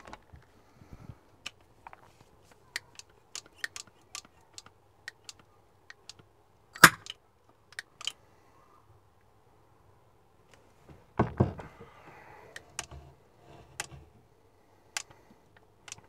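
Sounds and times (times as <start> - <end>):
sealant gun clicking and rattling: 2.7 - 5.4.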